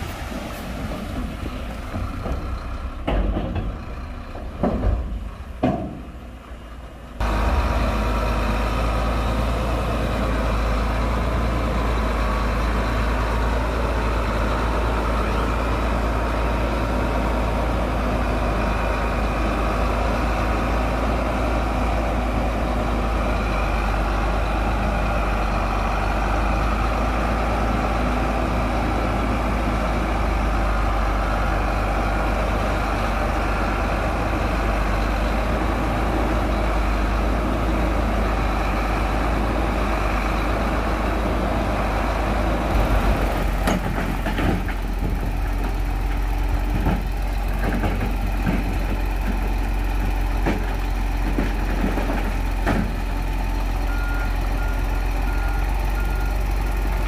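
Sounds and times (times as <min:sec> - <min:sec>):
diesel machinery engine rumble: 0:00.0 - 0:57.0
irregular knocks and clatter: 0:01.0 - 0:06.3, 0:42.7 - 0:53.1.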